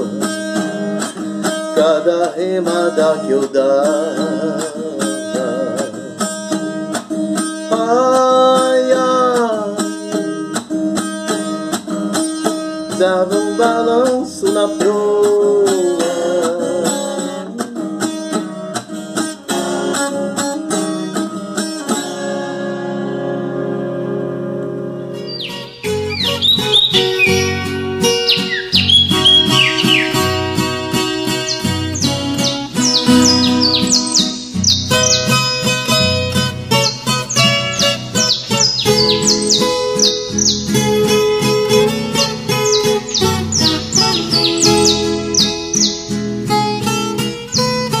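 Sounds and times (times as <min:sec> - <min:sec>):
man singing with vibrato: 0:00.0 - 0:06.7, 0:07.6 - 0:10.7, 0:12.8 - 0:22.6, 0:28.3 - 0:35.7
acoustic guitar strumming: 0:00.0 - 0:48.0.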